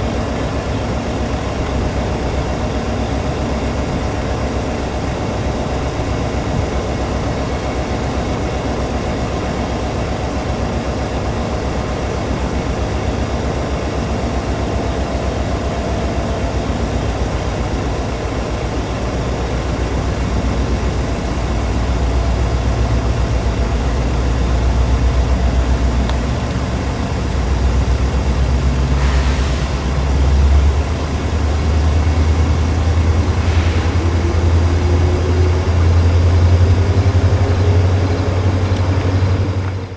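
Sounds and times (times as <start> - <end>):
diesel locomotive engine rumbling: 0.0 - 39.9
brief hisses: 29.0 - 29.8.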